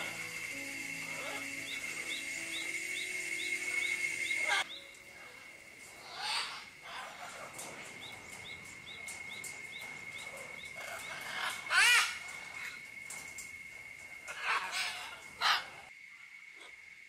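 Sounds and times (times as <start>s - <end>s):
macaw squawks: 0.0s - 4.8s, 6.0s - 7.5s, 10.8s - 12.3s, 14.3s - 15.8s
high-pitched drone: 0.0s - 7.0s.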